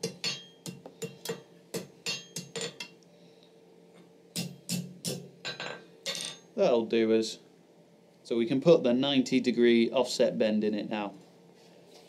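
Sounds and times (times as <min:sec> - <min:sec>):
hammer ringing on anvil: 0:00.0 - 0:02.9, 0:04.4 - 0:06.4.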